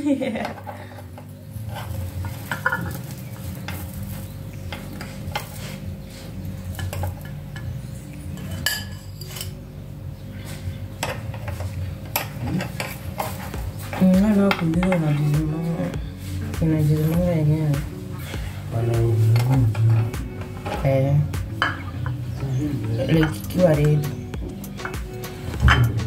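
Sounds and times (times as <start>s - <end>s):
steady low hum: 0.0s - 26.0s
metal spoon scraping metal plates: 0.4s - 4.0s, 6.7s - 9.6s, 10.9s - 15.4s, 21.6s - 26.0s.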